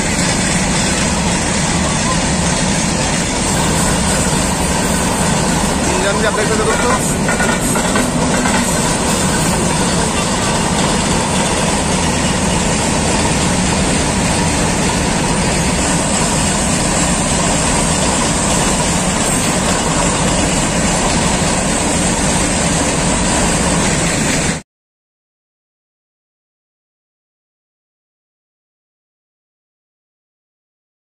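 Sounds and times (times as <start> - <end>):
train wheels on rails: 0.0 - 24.6.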